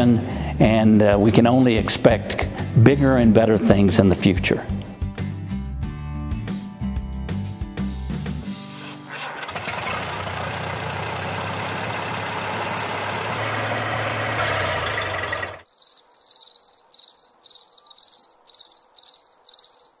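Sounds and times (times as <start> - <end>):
cricket chirping: 15.6 - 20.0.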